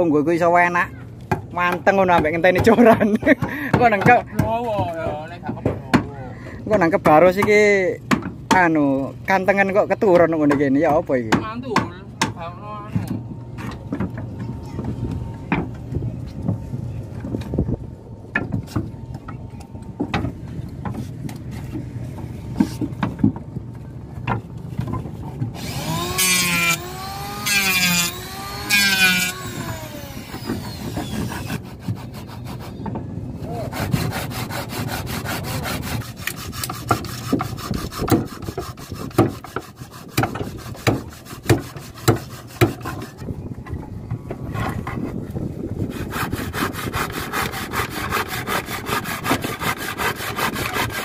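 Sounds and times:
sawing wood: 24.8s - 43.3s, 45.8s - 51.0s
power tool cutting plank: 25.6s - 32.6s, 33.7s - 42.8s, 45.9s - 51.0s.

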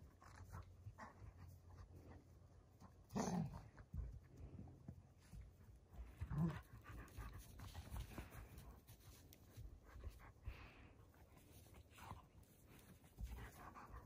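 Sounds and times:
puppies panting: 5.3s - 14.0s.

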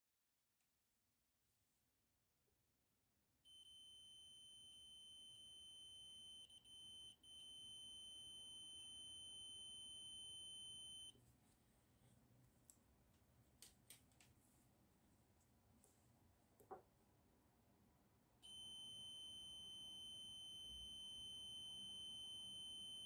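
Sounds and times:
multimeter high-pitched beep: 3.5s - 11.1s, 18.4s - 23.0s.

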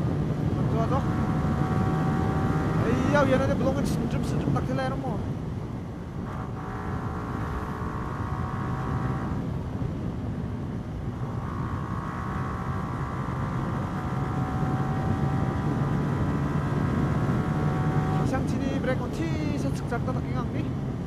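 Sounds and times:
wind and road noise: 0.0s - 21.0s
motorcycle engine running hard: 6.3s - 9.3s, 11.0s - 21.0s.

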